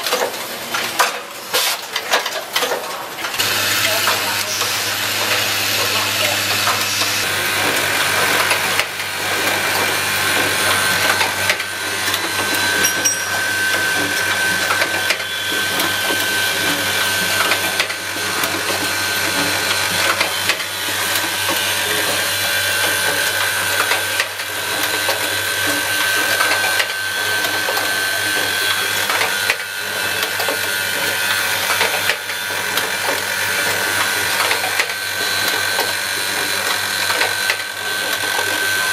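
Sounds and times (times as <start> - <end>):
rattling and clicking of parts: 0.0 - 3.4.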